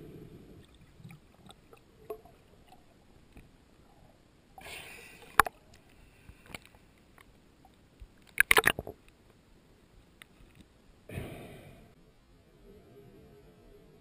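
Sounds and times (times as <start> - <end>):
underwater bubble noise: 0.0 - 3.0
underwater clicks and knocks: 6.4 - 9.1.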